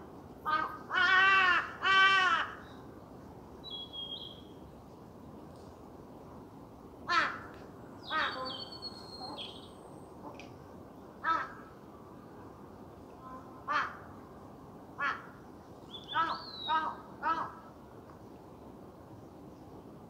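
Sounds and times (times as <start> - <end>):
thin high whistled bird call: 3.6 - 4.5, 8.0 - 9.8, 15.9 - 16.8
short bird calls: 15.9 - 17.6.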